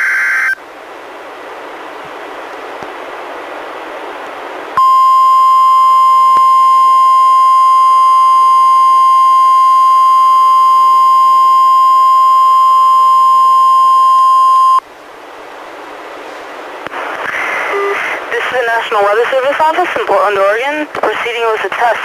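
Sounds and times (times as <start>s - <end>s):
loud steady alarm beep: 4.8s - 14.8s
radio hiss: 16.4s - 22.0s.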